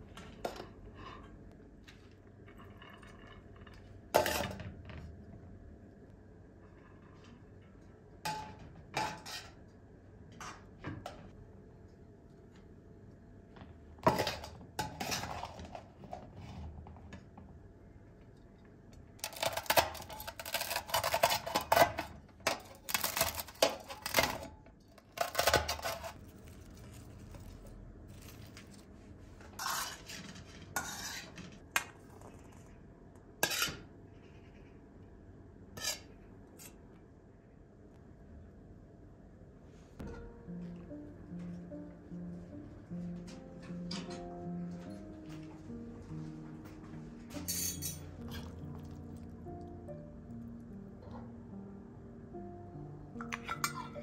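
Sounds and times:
metal skimmer scraping a pot: 19.2 - 27.5, 29.5 - 31.6.

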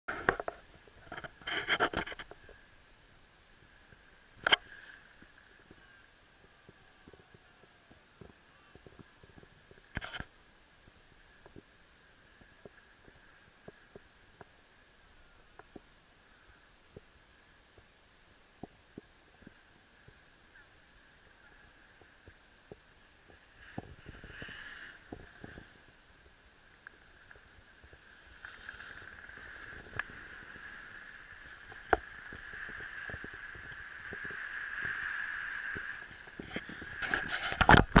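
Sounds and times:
snowboard hissing over snow: 4.6 - 5.3, 23.4 - 26.2, 27.0 - 37.0.

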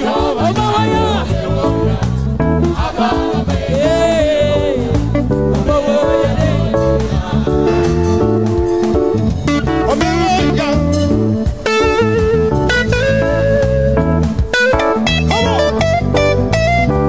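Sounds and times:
gospel band music: 0.0 - 17.0
person singing: 2.8 - 8.2.

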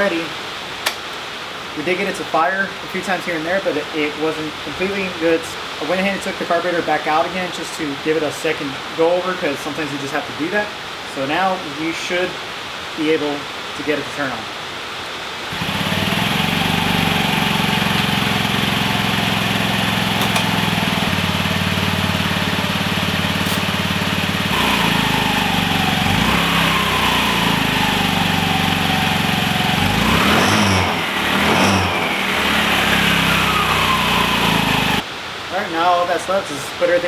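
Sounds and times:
scooter engine idling and revving: 15.5 - 35.0.

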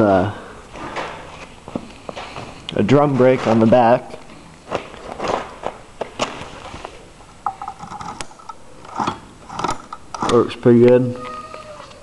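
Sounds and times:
handling scrapes and clicks: 6.4 - 10.5.

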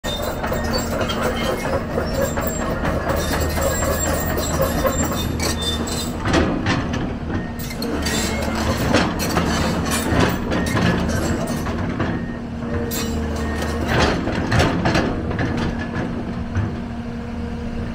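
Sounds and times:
steel track chains clanking: 0.0 - 6.2, 7.6 - 11.7, 12.8 - 14.0
excavator diesel engine running: 0.0 - 17.9.

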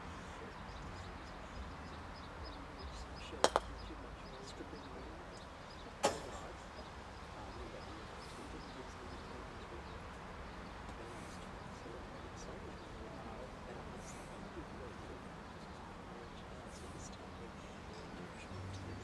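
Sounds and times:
croquet mallet striking ball: 3.4 - 3.8
croquet balls clacking together: 3.4 - 3.9.

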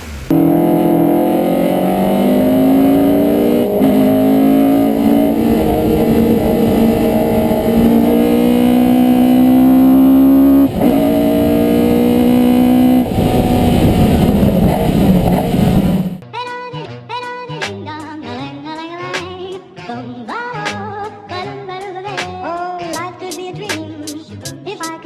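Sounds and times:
crackling engine overrun: 0.0 - 16.2
race car engine accelerating: 0.0 - 16.2.

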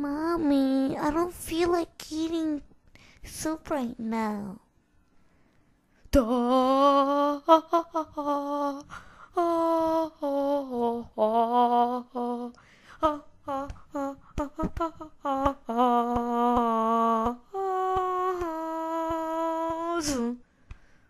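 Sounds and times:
woman humming a slow tune: 6.2 - 20.4.

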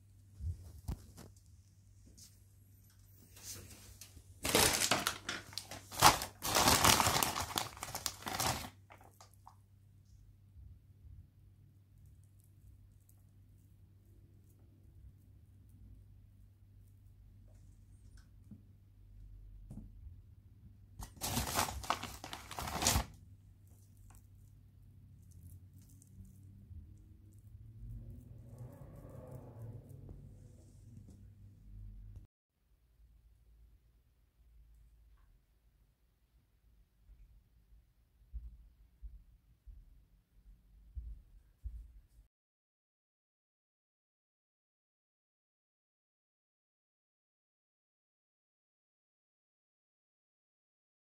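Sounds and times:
paper crumpling and rustling: 3.4 - 9.5, 21.0 - 24.3
sharp paper crack: 4.4 - 9.5, 21.0 - 23.2.

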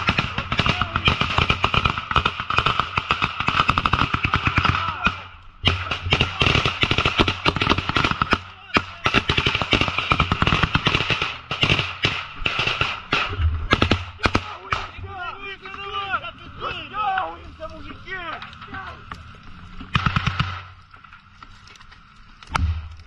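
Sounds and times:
automatic gunfire: 0.0 - 14.9, 19.9 - 20.7.

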